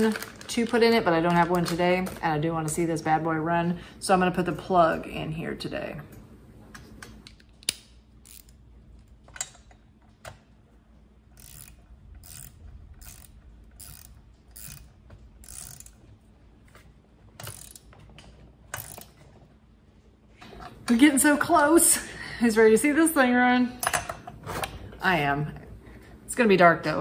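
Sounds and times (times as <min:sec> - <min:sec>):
ratchet wrench clicking: 0:07.6 - 0:08.6, 0:11.3 - 0:16.1, 0:17.4 - 0:17.9, 0:18.7 - 0:19.2.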